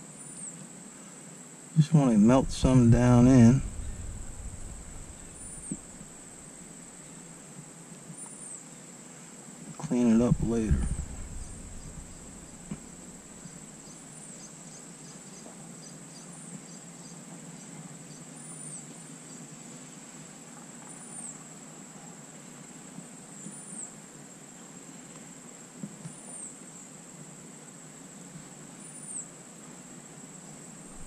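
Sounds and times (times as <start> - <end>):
insects trilling: 1.8 - 7.3, 9.8 - 19.4.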